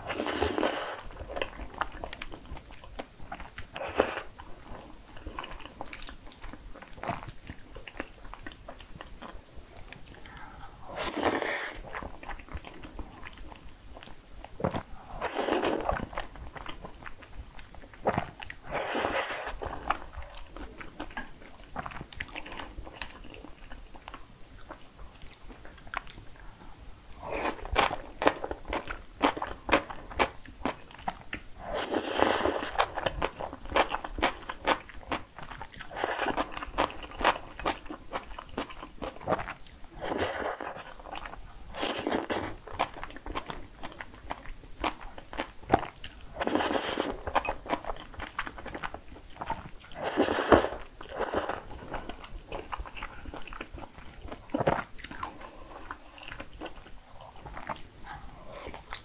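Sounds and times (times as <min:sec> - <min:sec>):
slurping noodles: 0:10.9 - 0:11.9, 0:15.2 - 0:15.9, 0:18.6 - 0:19.7, 0:31.6 - 0:32.8, 0:46.4 - 0:47.2, 0:49.9 - 0:51.7
wet chewing: 0:27.1 - 0:59.0.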